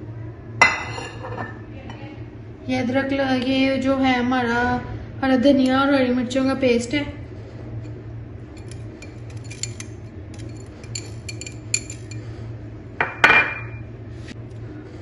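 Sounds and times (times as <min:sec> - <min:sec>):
glass bowl clinking on terracotta: 0:08.6 - 0:12.2.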